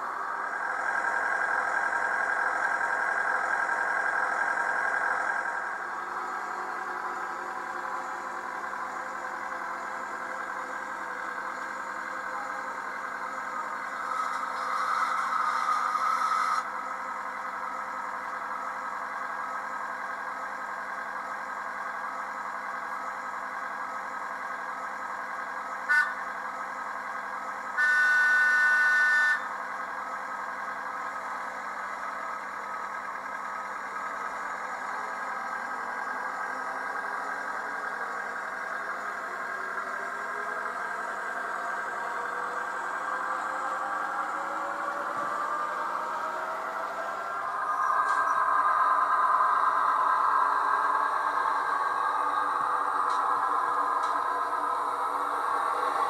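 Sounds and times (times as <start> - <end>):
model train running drone: 0.0 - 56.0
train horn toot: 25.9 - 26.3, 27.8 - 29.5.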